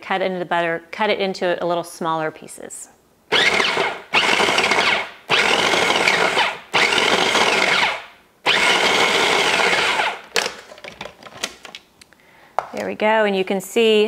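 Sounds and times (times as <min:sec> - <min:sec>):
food processor motor whirring: 0:03.3 - 0:10.2.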